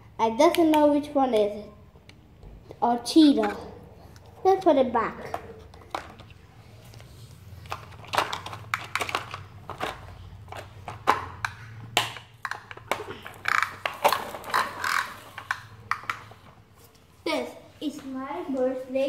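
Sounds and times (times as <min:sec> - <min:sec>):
plastic toys clicking and rattling: 0:05.2 - 0:06.3, 0:06.9 - 0:16.5.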